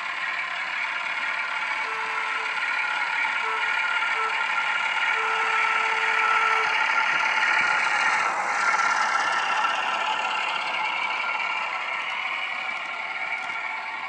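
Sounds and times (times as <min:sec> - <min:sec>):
model locomotive engine sound: 0:00.0 - 0:14.0
plain steady tone: 0:01.7 - 0:07.7.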